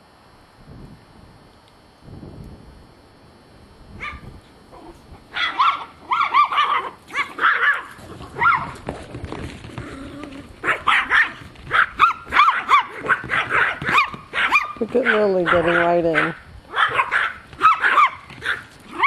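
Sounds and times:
small dogs barking high-pitched: 4.0s - 8.8s, 10.6s - 19.0s.

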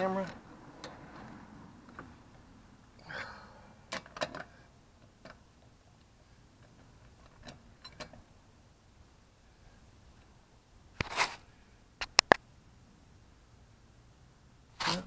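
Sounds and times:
brief metal scrape: 11.0s - 11.4s, 14.8s - 15.0s.

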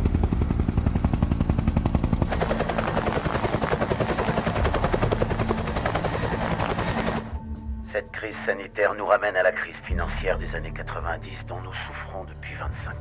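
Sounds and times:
helicopter rotor chopping: 0.0s - 7.4s.

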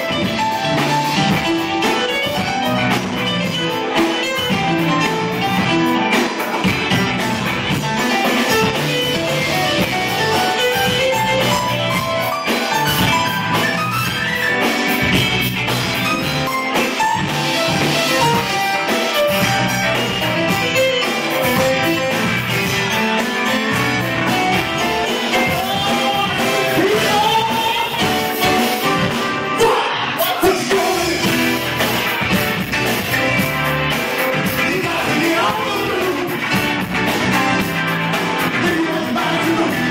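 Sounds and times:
live rock band playing: 0.0s - 39.9s
man singing: 25.1s - 28.4s, 29.5s - 31.5s, 34.4s - 36.6s, 38.4s - 39.9s.

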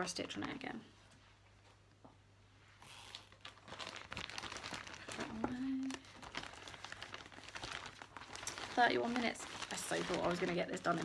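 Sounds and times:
packaging crinkling: 2.8s - 11.0s
person humming: 5.2s - 6.0s.

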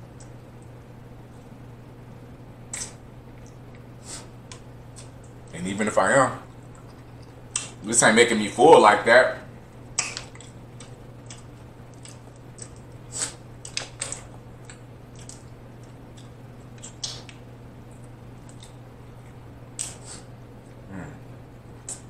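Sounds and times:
steady low hum: 0.0s - 22.0s
crab shells cracking: 9.9s - 13.0s, 13.6s - 17.4s.

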